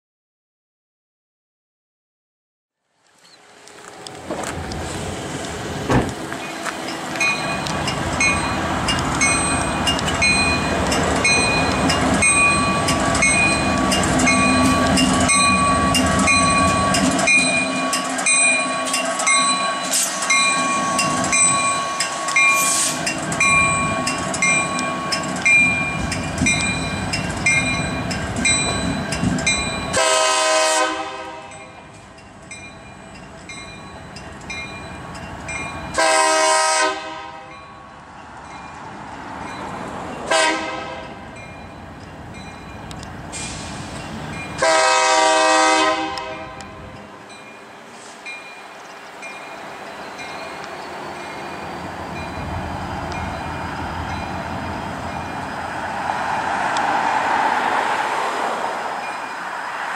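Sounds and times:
diesel locomotive engine running: 3.4 - 37.3, 38.0 - 59.9
locomotive bell ringing: 6.4 - 36.6, 37.2 - 55.7, 58.9 - 59.6
loud locomotive horn blasts: 29.9 - 31.8, 35.9 - 37.6, 40.3 - 41.2, 44.6 - 46.8.

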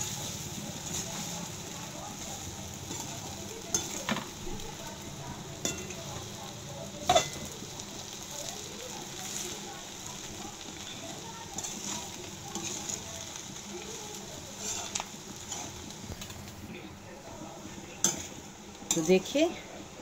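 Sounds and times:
frying sizzle: 0.0 - 20.0
spoon clinking against pan: 3.7 - 4.3, 5.6 - 6.1, 7.0 - 7.5
metal spoon scraping pan: 11.6 - 13.0, 14.5 - 15.9.

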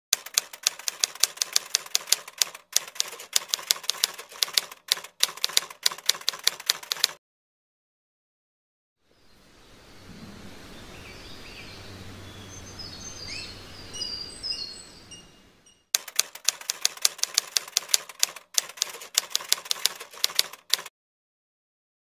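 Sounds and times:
typewriter keystroke clicks: 0.2 - 7.2, 16.0 - 20.9
soft outdoor hiss: 9.0 - 15.7
birds chirping: 9.1 - 15.9.

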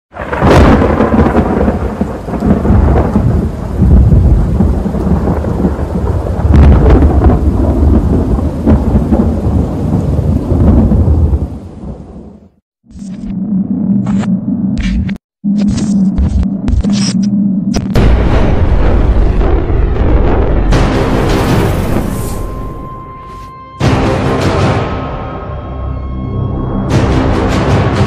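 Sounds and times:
steady rain: 0.1 - 12.4
thunder rolling: 0.2 - 12.5, 17.9 - 23.1.

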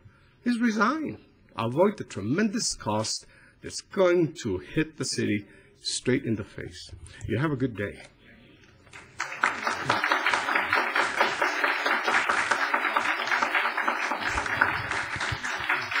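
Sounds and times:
audience applauding: 8.9 - 16.0.

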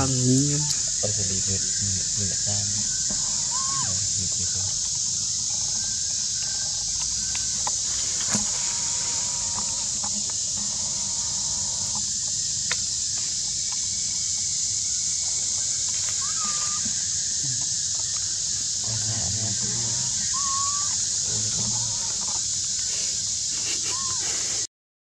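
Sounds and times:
high-pitched hiss: 0.0 - 24.7.

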